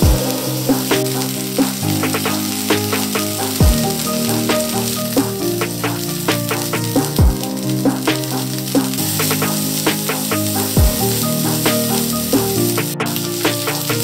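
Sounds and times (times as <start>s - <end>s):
deep drum hit: 0.0s - 1.3s
background music with held tones: 0.0s - 14.0s
meat sizzling in a skillet: 0.1s - 14.0s.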